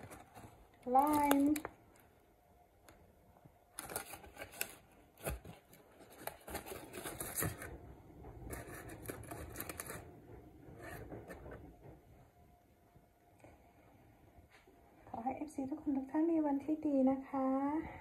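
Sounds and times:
aluminium foil crinkling: 0:00.0 - 0:02.1, 0:03.7 - 0:07.8, 0:08.4 - 0:10.1.

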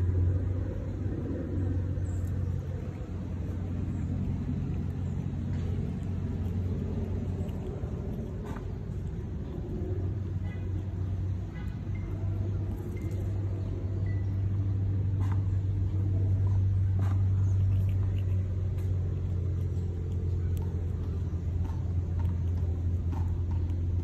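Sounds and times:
low mechanical rumble: 0:00.0 - 0:24.0.

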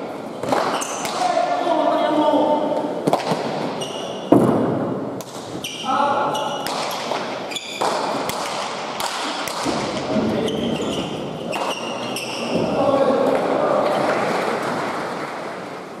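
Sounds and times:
shoes squeaking on court floor: 0:00.4 - 0:01.2, 0:03.7 - 0:04.5, 0:05.5 - 0:08.2, 0:10.0 - 0:12.8
voices: 0:09.8 - 0:14.6.

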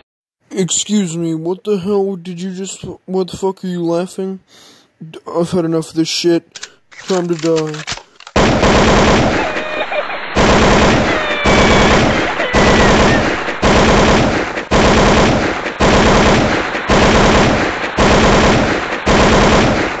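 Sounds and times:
machine-gun fire bursts: 0:08.3 - 0:20.0.

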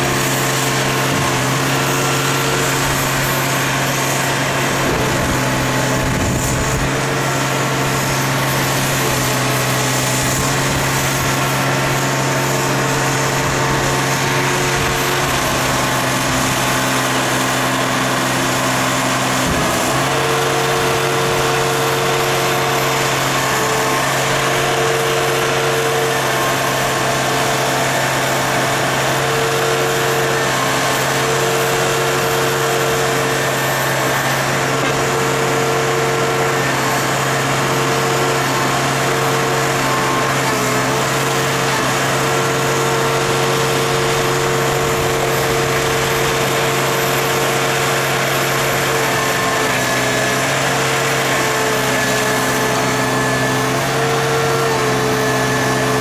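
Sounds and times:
hydraulic mechanical whirr: 0:00.0 - 0:24.4
machine engine humming: 0:00.0 - 0:56.0.

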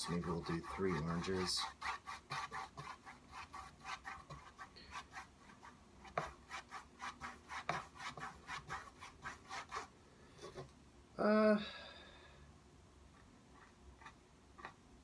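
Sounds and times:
paintbrush scrubbing on canvas: 0:00.0 - 0:09.9.

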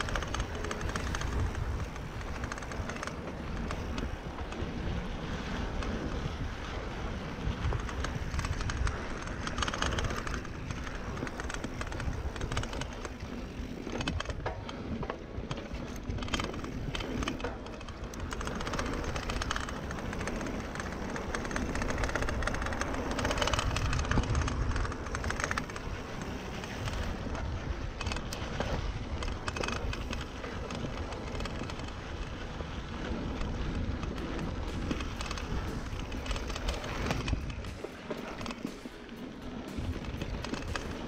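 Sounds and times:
bike rattling over bumps: 0:00.0 - 0:41.0
bike tyres rolling on dirt: 0:00.0 - 0:41.0
wind rushing over microphone: 0:00.0 - 0:41.0.

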